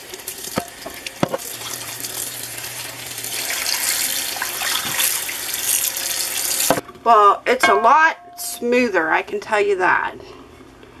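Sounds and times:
tap water running into pan: 0.0s - 6.8s.

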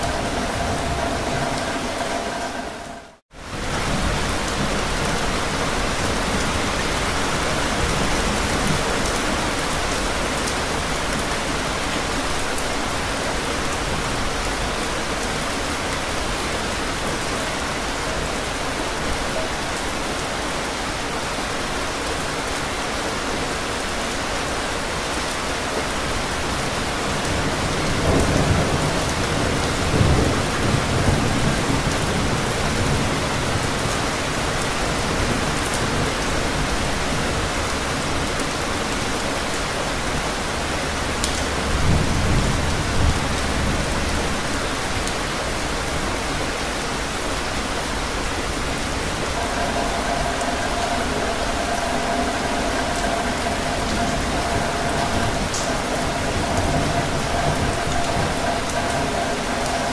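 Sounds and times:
low thunder rolls: 0.0s - 12.2s, 47.8s - 59.9s
heavy rain on hard ground: 0.0s - 59.9s.

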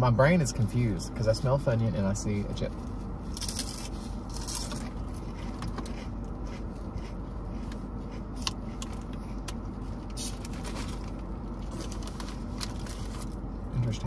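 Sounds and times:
car cabin hum: 0.0s - 14.0s.

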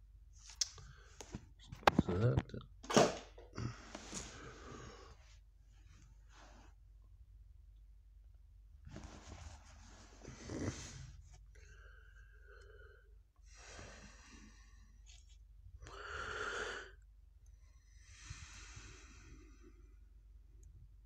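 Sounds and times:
soft breathing: 3.5s - 6.8s, 8.9s - 20.2s.

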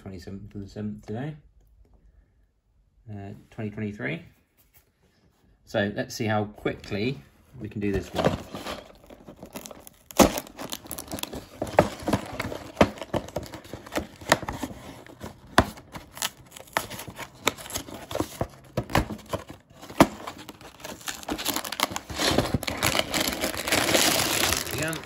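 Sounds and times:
cardboard rustling: 7.7s - 25.0s
cardboard tabs tearing: 8.4s - 25.0s.

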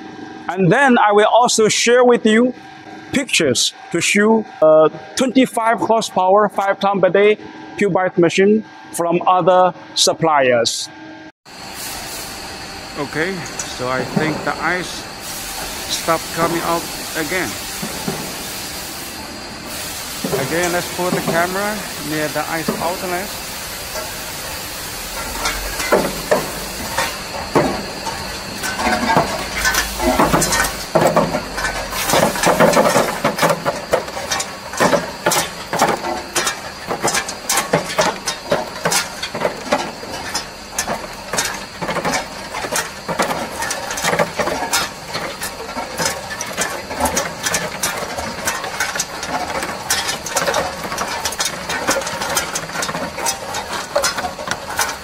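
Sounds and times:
ice machine running: 11.5s - 55.0s.

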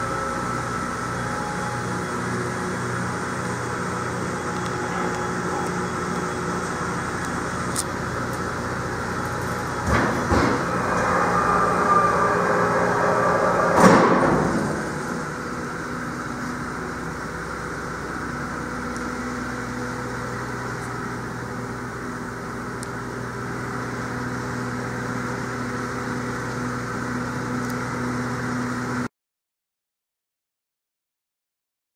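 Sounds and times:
steady low hum: 0.0s - 29.0s
metal door banging: 9.8s - 15.6s.

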